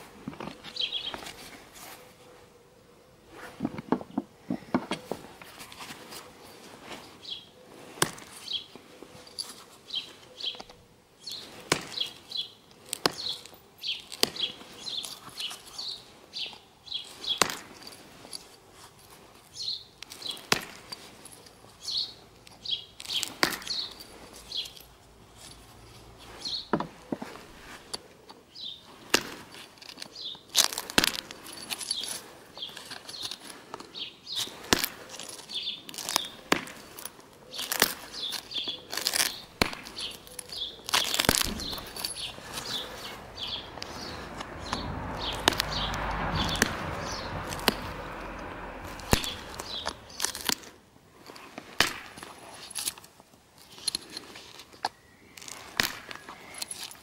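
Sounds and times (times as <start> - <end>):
rough rubbing noise: 41.0 - 50.6.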